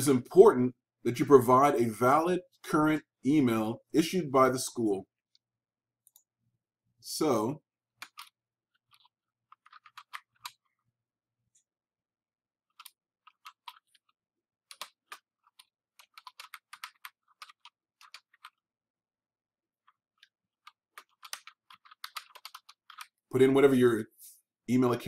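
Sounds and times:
keyboard typing: 8.0s - 10.8s, 12.7s - 18.6s, 19.8s - 23.5s.

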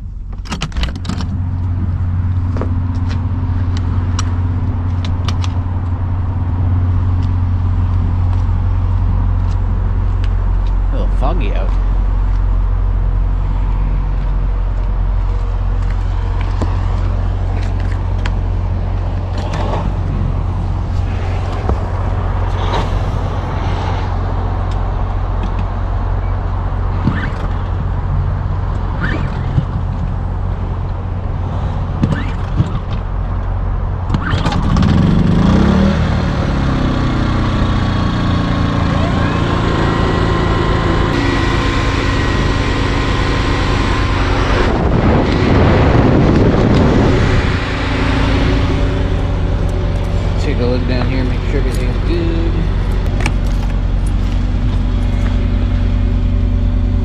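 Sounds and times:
generator humming: 34.8s - 57.0s.

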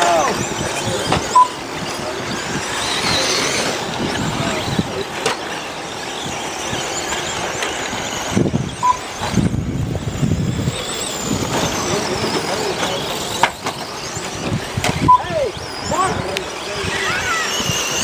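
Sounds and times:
rc truck engines whining: 0.0s - 18.0s
short beep: 1.4s - 1.6s, 8.8s - 9.0s.

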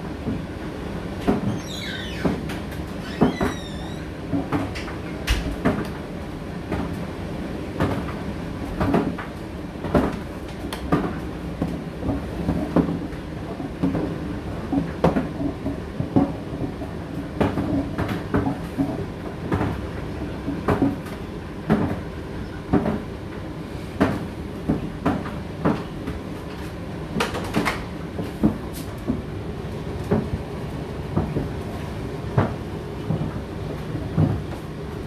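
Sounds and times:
tumble dryer motor hum: 0.0s - 35.0s.

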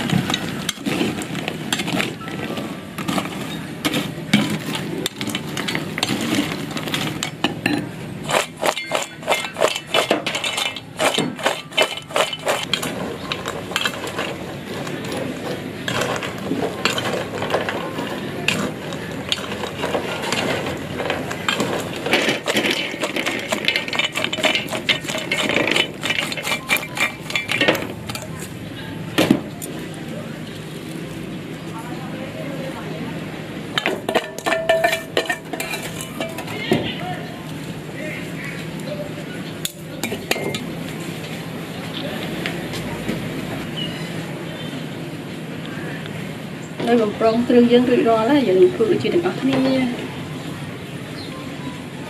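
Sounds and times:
crunchy pasta rattling: 0.0s - 28.6s
metal spoon scraping pot: 0.0s - 28.6s, 33.8s - 36.7s.

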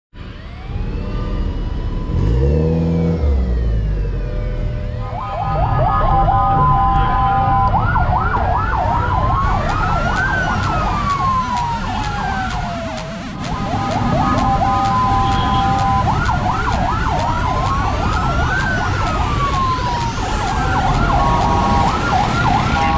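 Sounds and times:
fast warbling siren: 0.2s - 22.9s
rising and falling siren wail: 0.2s - 22.9s
car engines running: 0.3s - 22.9s
steady horn-like tones: 8.9s - 18.7s, 19.4s - 22.9s.

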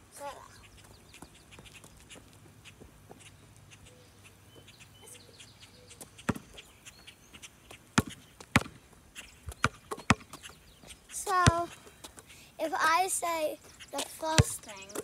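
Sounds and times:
basketball bouncing on asphalt: 5.9s - 12.2s, 14.0s - 15.0s.

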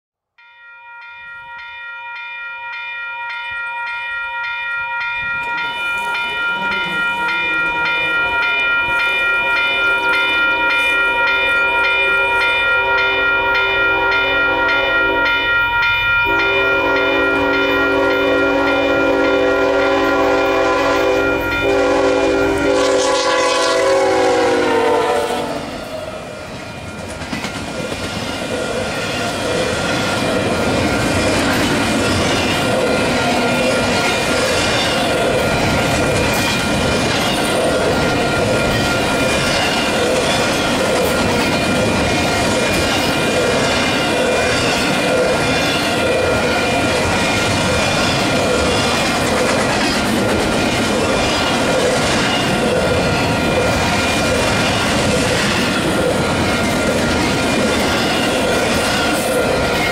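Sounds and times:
train air horn: 12.8s - 15.3s, 16.3s - 25.8s.

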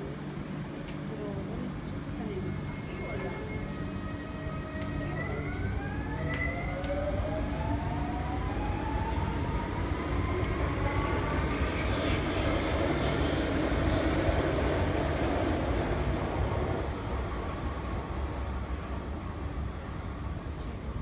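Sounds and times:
wheels hissing on rail: 11.2s - 21.0s.

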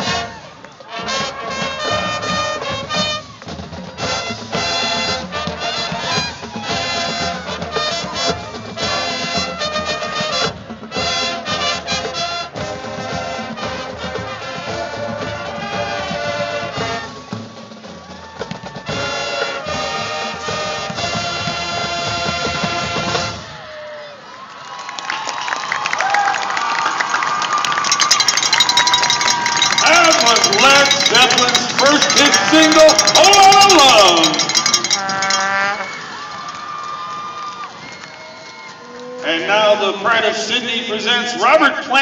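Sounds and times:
marching band playing rock: 0.0s - 23.6s, 27.7s - 36.4s.

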